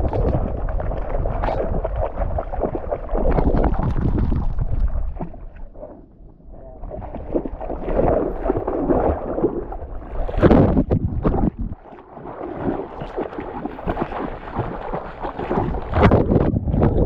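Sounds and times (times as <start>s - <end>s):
river water splashing and gurgling: 0.0s - 6.0s, 6.8s - 16.8s
wind buffeting microphone: 10.2s - 11.8s, 13.9s - 17.0s.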